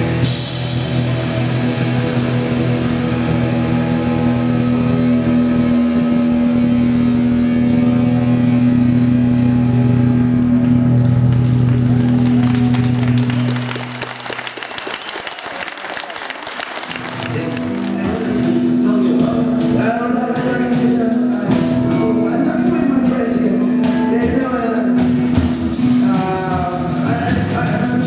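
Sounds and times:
rock band sustained chord: 0.0 - 28.0
audience applause: 11.0 - 18.5.

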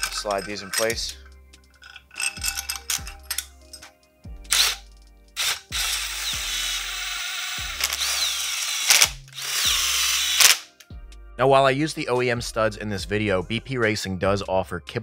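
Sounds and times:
background music with steady beat: 0.0 - 15.0
power drill spinning: 4.5 - 4.8, 5.4 - 10.7.

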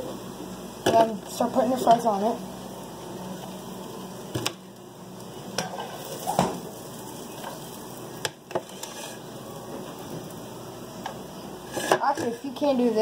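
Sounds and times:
hot oil sizzling: 0.0 - 13.0
metal utensil scraping frying pan: 8.5 - 9.3, 11.6 - 12.5.

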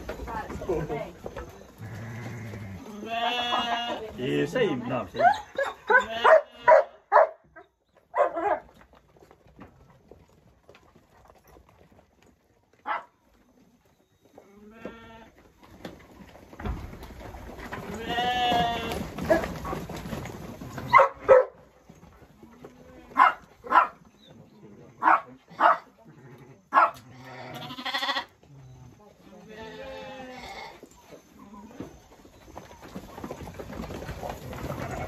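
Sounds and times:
sheep bleating: 1.8 - 4.1, 5.9 - 6.8, 17.9 - 19.0, 27.1 - 28.4, 29.4 - 30.7.

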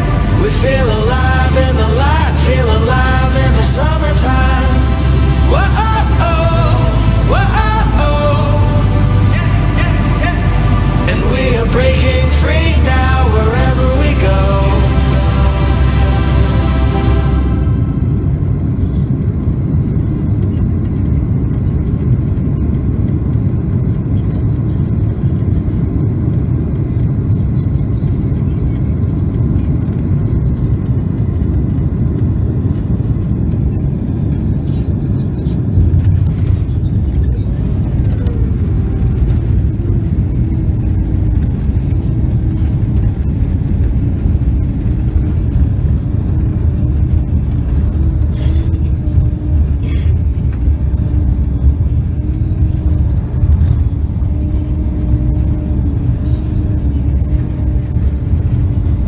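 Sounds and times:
falling tone: 0.0 - 19.1
jet engines and wheels rumbling: 0.0 - 59.0.

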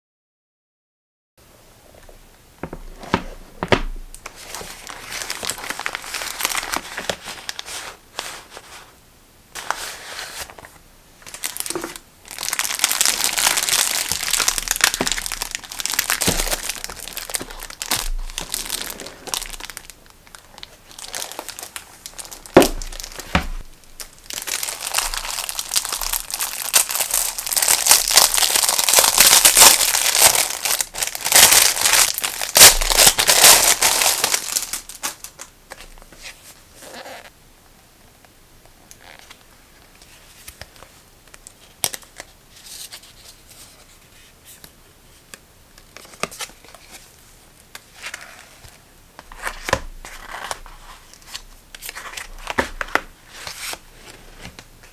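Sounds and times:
plastic packaging crinkling: 4.2 - 8.7, 9.6 - 36.2, 49.2 - 54.9.

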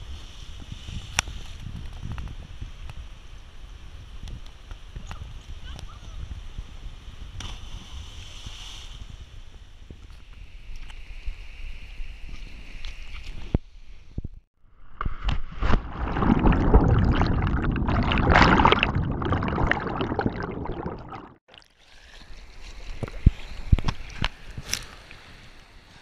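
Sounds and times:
rush of air: 15.1 - 21.3
river current splashing: 15.5 - 21.4
underwater bubbles churning: 15.5 - 21.6.

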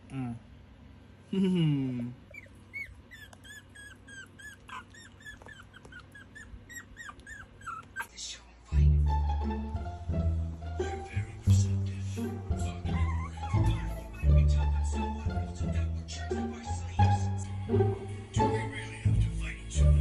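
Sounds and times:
puppy squeaking and whimpering: 2.2 - 8.2, 12.9 - 14.5
music: 8.7 - 20.0.

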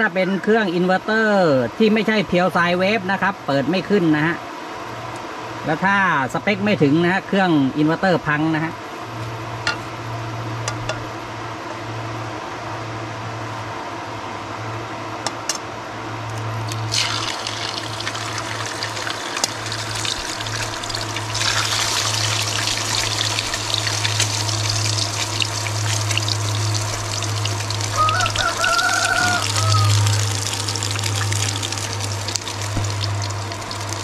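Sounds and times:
steady low hum: 0.8 - 28.6, 29.3 - 34.0
eggs sizzling in hot oil: 16.7 - 34.0.

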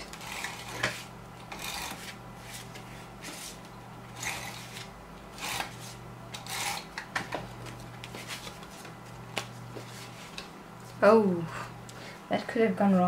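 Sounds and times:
tape runner zipping along card: 4.2 - 6.9.

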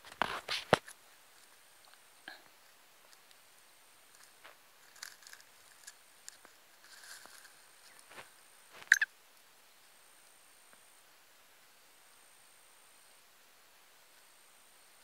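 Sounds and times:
dry grass rustling and crackling: 0.0 - 9.1.

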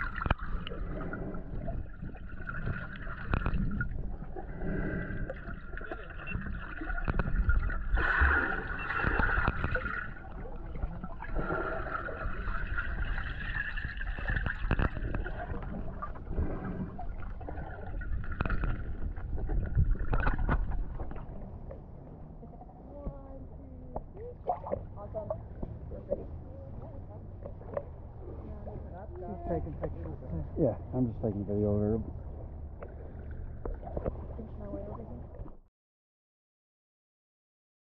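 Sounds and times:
muffled underwater sloshing: 0.0 - 35.7.

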